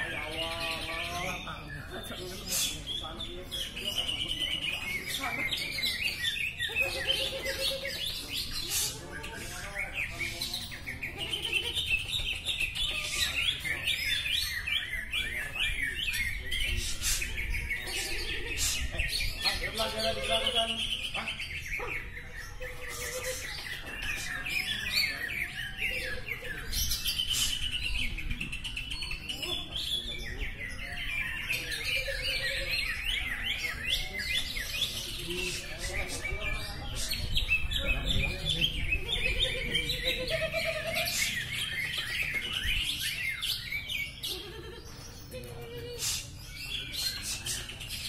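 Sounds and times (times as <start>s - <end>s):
birds singing: 0.0s - 48.0s.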